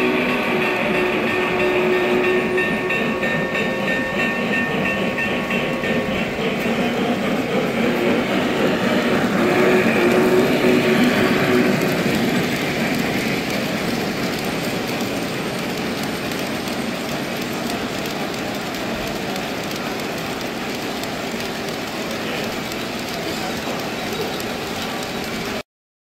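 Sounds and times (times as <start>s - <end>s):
model train wheels on rails: 0.0s - 25.6s.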